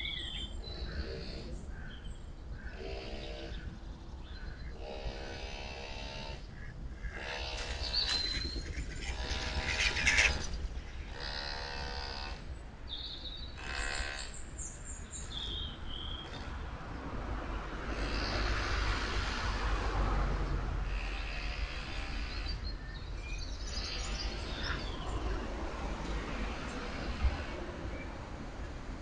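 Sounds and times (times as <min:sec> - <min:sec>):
small birds chirping: 0:00.0 - 0:05.7, 0:06.3 - 0:16.5, 0:21.0 - 0:25.4.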